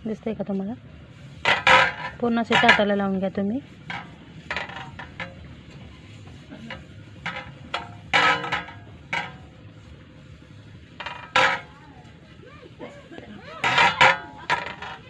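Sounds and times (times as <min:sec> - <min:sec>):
hand rubbing metal plate: 0:00.5 - 0:15.0
metal plate scrapes and knocks: 0:01.2 - 0:12.2, 0:13.5 - 0:15.0.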